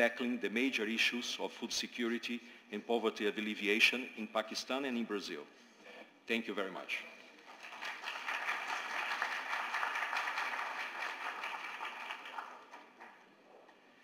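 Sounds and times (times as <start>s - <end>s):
audience applauding: 7.5s - 13.3s.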